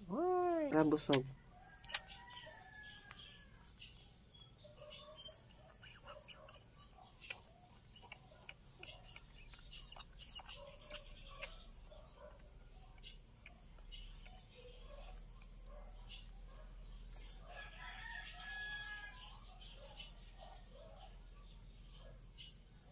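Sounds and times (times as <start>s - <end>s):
small bird chirping: 0.1s - 17.4s
puppy suckling wet clicks: 1.0s - 2.2s, 6.2s - 14.6s.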